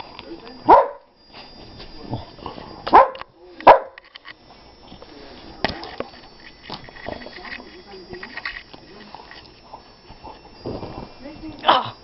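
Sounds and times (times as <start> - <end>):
dog barking: 0.7 - 1.1, 2.9 - 4.0.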